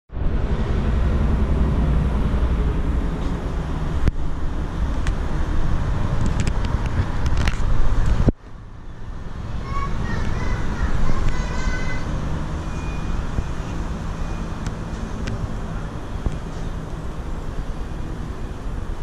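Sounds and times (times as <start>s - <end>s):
loud low rumble: 0.1s - 19.0s.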